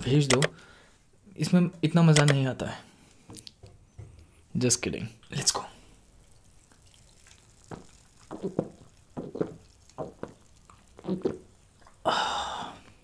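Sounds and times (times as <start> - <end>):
man gulping a drink: 6.3 - 13.0.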